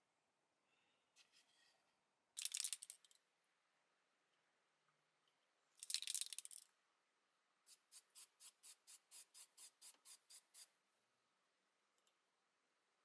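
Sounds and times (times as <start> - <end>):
spray paint can spraying: 7.7 - 10.7.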